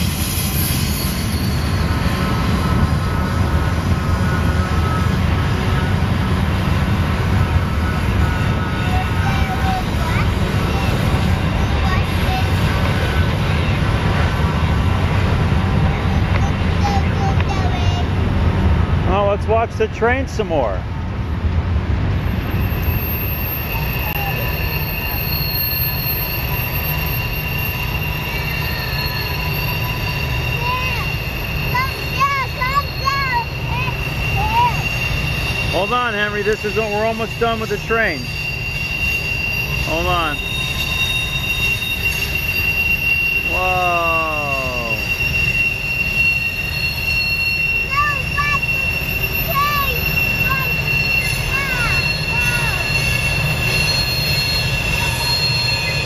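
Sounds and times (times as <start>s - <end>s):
wheels squealing on curved track: 0.0s - 18.1s, 22.1s - 56.0s
low rumble of train wheels: 0.0s - 56.0s
wail sliding down in pitch: 43.4s - 45.3s.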